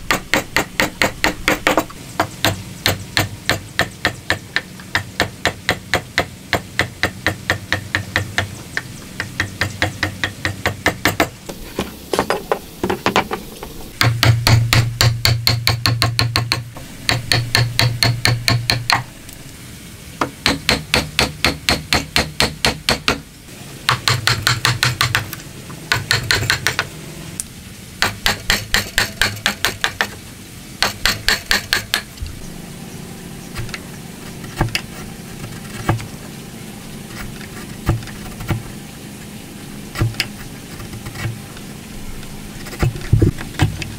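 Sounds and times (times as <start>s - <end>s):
hammer striking chisel: 0.1s - 8.5s, 9.2s - 11.3s, 14.0s - 19.0s, 20.4s - 23.2s, 23.9s - 25.3s, 25.9s - 26.9s, 28.0s - 30.2s, 30.8s - 32.1s.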